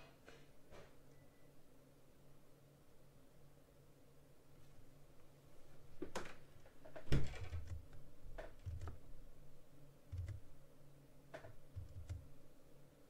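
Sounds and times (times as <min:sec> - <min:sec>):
computer keyboard keystrokes: 0:07.3 - 0:09.0, 0:10.1 - 0:10.4, 0:11.4 - 0:12.3.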